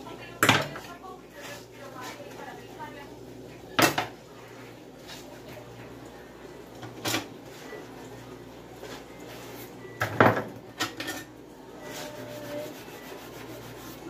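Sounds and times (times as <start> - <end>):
dishes clattering in a sink: 0.4 - 1.0, 3.7 - 4.2, 6.8 - 7.4, 9.9 - 11.4.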